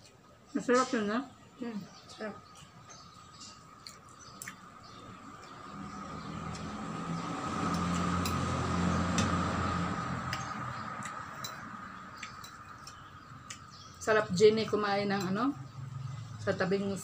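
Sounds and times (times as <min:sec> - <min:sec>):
vehicle engine passing by: 0:04.8 - 0:12.9, 0:15.5 - 0:17.0.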